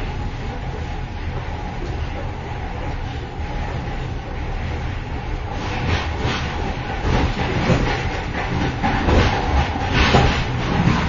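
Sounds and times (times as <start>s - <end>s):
train wheels rumbling on track: 0.0s - 11.0s
clattering and rattling: 5.6s - 11.0s.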